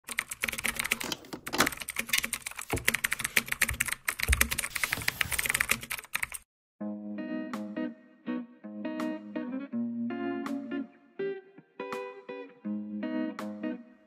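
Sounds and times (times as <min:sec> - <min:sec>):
computer keyboard typing: 0:00.1 - 0:06.4.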